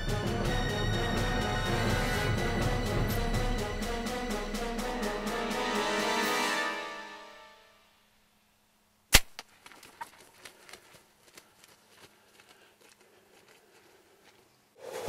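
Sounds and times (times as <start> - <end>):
faint clicks and rustles: 9.4 - 14.6.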